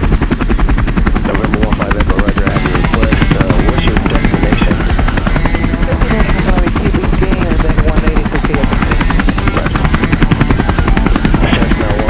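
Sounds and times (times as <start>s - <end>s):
helicopter rotor chop: 0.0s - 12.0s
music: 2.4s - 12.0s.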